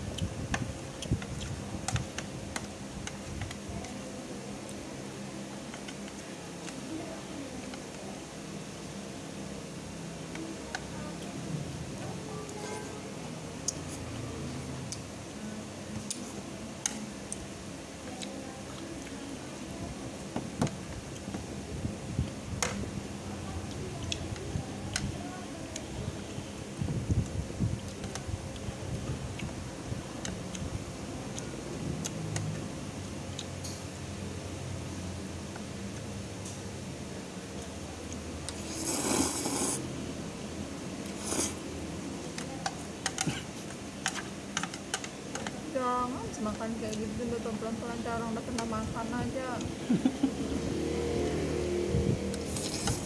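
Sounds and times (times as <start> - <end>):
wall fan humming: 0.0 - 53.0
chewing and slurping: 38.5 - 39.8, 41.0 - 41.7, 52.3 - 53.0.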